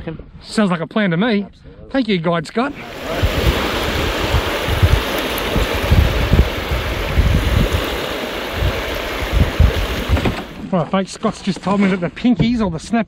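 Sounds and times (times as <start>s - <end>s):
wind rumbling on microphone: 2.7s - 10.6s
rush of wind and water: 2.7s - 10.7s.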